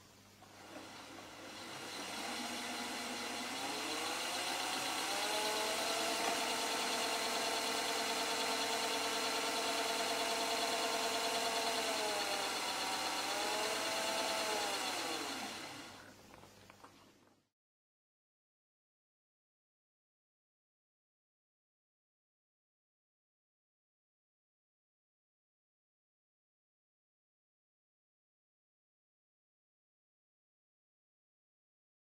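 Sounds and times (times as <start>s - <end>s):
electric spinning wheel motor whine: 0.4s - 16.1s.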